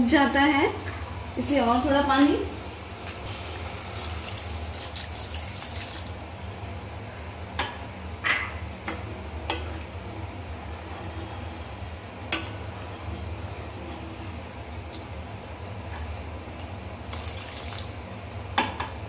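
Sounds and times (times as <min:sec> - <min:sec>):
water pouring into a pan: 0:03.3 - 0:06.4, 0:17.1 - 0:18.1.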